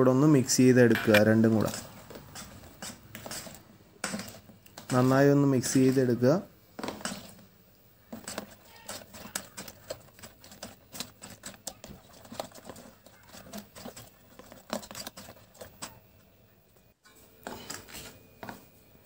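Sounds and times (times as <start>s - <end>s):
utensil stirring in metal bowl: 1.1s - 16.3s.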